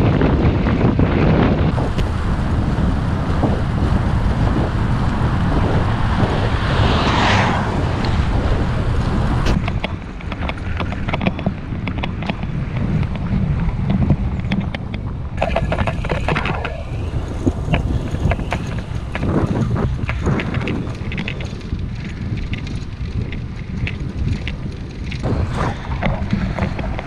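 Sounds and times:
road noise: 0.0s - 27.0s
wind buffeting microphone: 0.0s - 27.0s
car passing: 1.7s - 10.7s, 15.4s - 21.6s, 25.2s - 27.0s.

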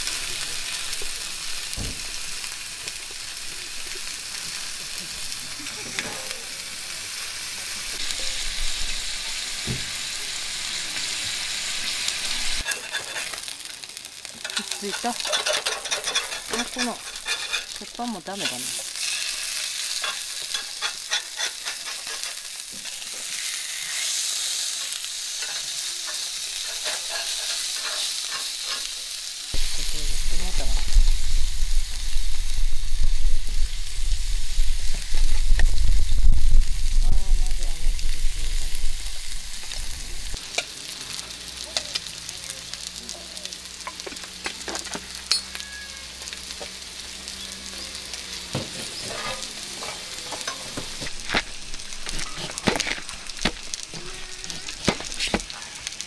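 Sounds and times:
corn frying: 0.0s - 56.0s
fish sizzling in a pan: 0.0s - 56.0s
metal spatula scraping: 12.6s - 13.5s, 14.4s - 29.2s, 48.7s - 55.5s
low rumble: 29.6s - 40.4s.

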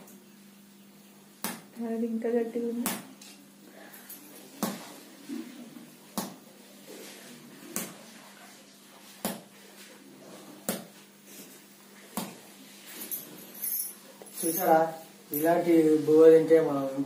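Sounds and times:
rice ball smacking floor: 1.4s - 1.7s, 6.2s - 6.4s, 7.7s - 8.0s, 9.2s - 9.6s, 10.6s - 11.0s, 12.1s - 12.4s.

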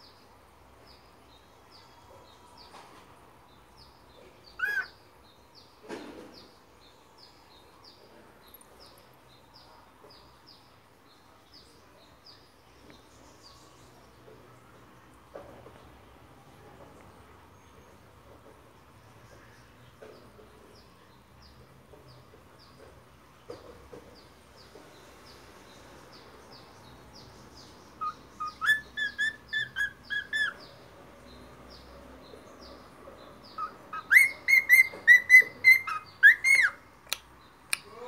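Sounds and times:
cockatiel whistling: 34.0s - 36.8s.

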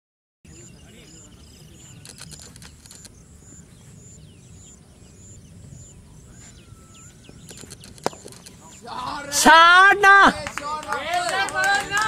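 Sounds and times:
birds chirping: 0.4s - 12.0s
repeating high chirp: 0.5s - 8.9s
low rumble: 1.4s - 8.8s
faint clicks: 2.0s - 3.2s, 7.4s - 8.7s.

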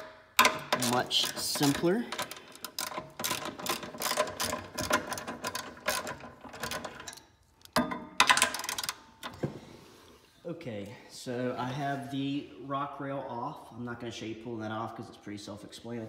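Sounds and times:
hand ratchet clicking: 0.0s - 9.0s.

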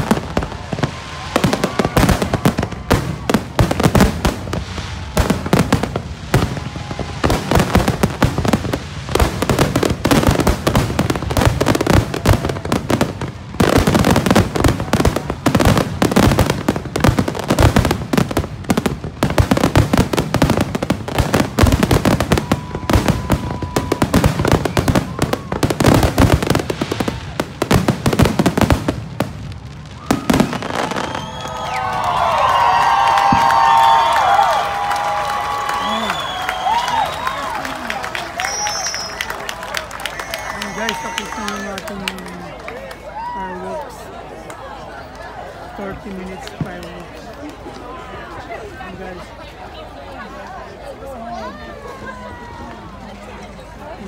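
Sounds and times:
fireworks booming and crackling: 0.0s - 39.6s.

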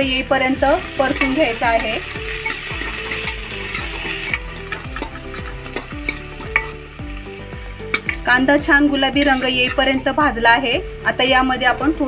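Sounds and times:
onions sizzling in oil: 0.0s - 12.0s
ladle scraping metal pot: 0.9s - 6.9s, 7.8s - 8.4s, 9.0s - 10.0s.

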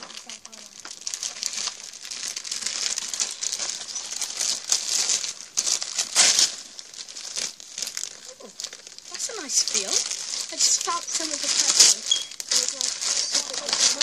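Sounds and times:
gift wrapping crinkling and tearing: 0.0s - 14.0s.

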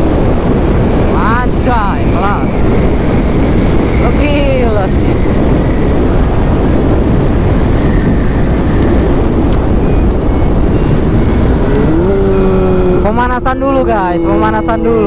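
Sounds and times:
wind on microphone: 0.0s - 15.0s
motorcycle engine and tyres: 4.7s - 13.1s.

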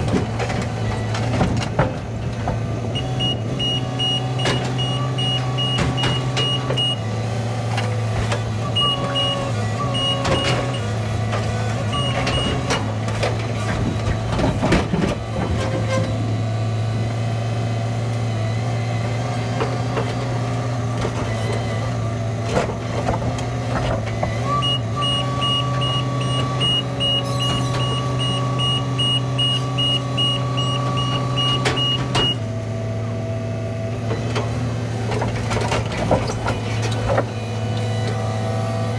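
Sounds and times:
crane engine running: 0.0s - 38.9s
high warning beeps: 24.7s - 32.4s.

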